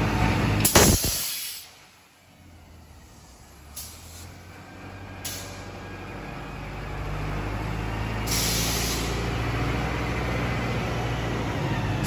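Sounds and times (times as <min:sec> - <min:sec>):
air hissing burst: 0:00.6 - 0:01.8, 0:08.3 - 0:09.2.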